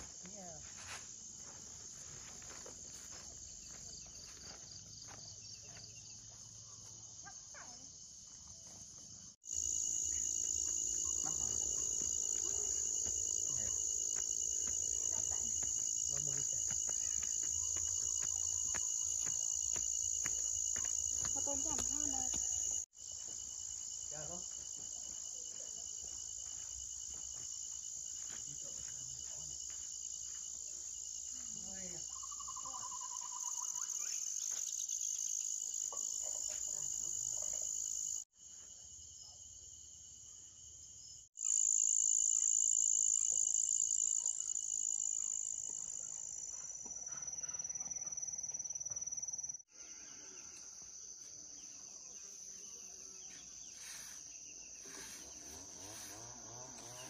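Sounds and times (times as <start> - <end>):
high-pitched insect drone: 9.5 - 38.3, 41.4 - 46.9.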